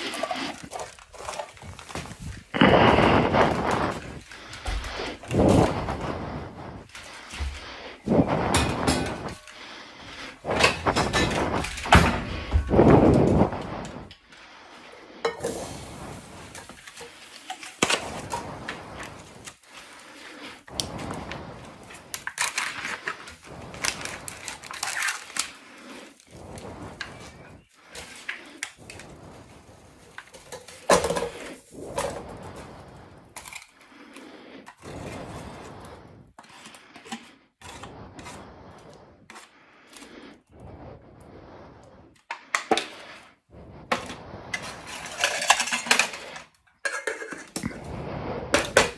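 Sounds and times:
food scraped from a bowl: 0.0s - 14.1s, 25.0s - 42.0s
camping pots and lids clinking: 8.3s - 9.6s, 15.2s - 19.6s, 44.0s - 47.8s.

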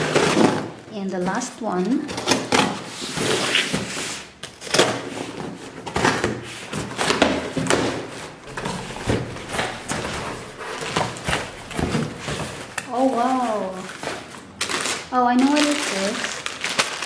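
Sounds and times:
scissors cutting packing tape: 0.0s - 8.0s, 8.6s - 17.0s.

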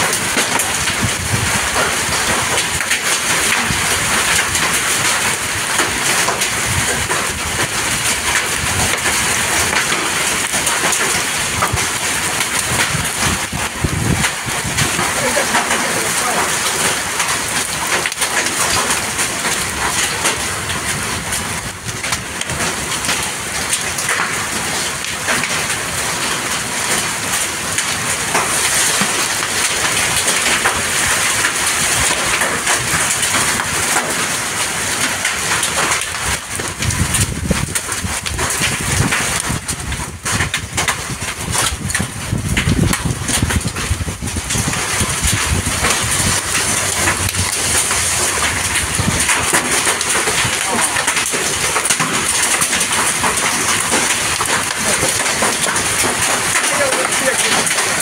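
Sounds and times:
heavy rain with hail: 0.0s - 58.0s
deep rumble: 12.6s - 15.4s, 36.8s - 51.0s.

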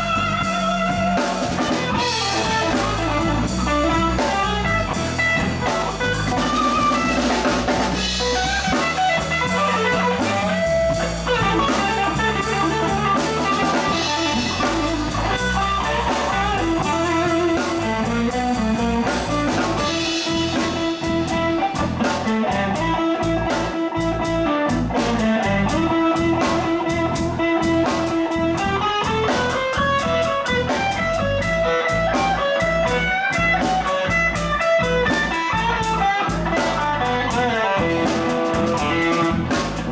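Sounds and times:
drum kit steady beat: 0.0s - 39.9s
electric bass: 0.0s - 39.9s
electric guitar: 0.0s - 39.9s.

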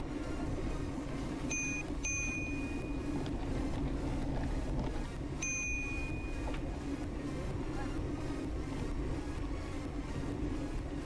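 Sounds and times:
low rumble of bicycle ride: 0.0s - 11.0s
bicycle bell ringing: 1.5s - 3.0s, 5.4s - 6.3s.

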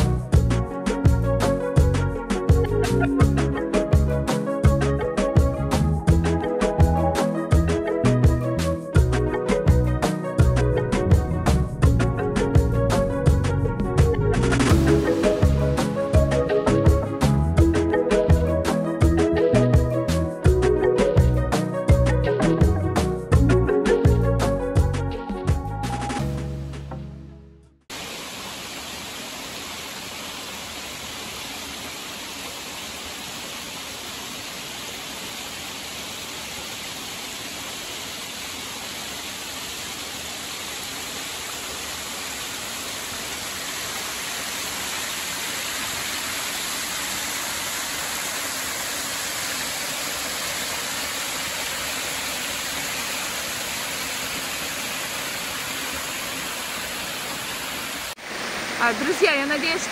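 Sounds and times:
waterfall rushing: 14.4s - 17.2s, 27.9s - 59.9s
stream splashing over rock: 27.9s - 59.9s.

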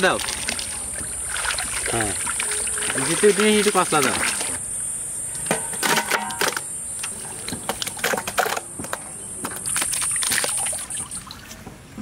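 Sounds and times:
steady high buzz: 0.0s - 7.5s.

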